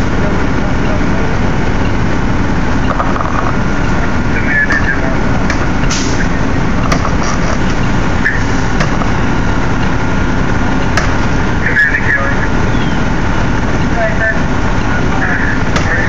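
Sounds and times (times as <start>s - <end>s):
fire truck engines and pumps: 0.0s - 16.0s
sharp knocks: 4.7s - 6.0s, 6.8s - 7.7s, 8.7s - 9.3s, 10.8s - 11.3s, 15.7s - 16.0s.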